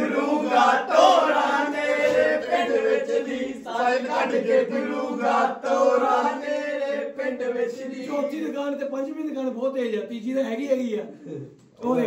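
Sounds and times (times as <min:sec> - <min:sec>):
men singing and chanting: 0:00.0 - 0:08.4.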